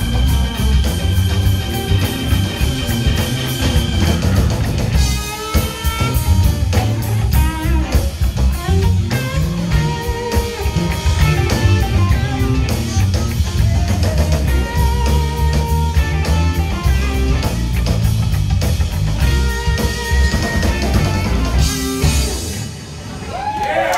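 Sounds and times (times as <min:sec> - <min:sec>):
electric blues band playing: 0:00.0 - 0:23.4.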